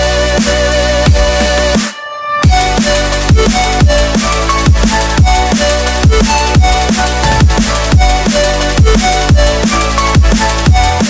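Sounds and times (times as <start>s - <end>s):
deep sliding kick drums: 2.5s - 11.0s
sustained synth notes: 6.7s - 9.6s.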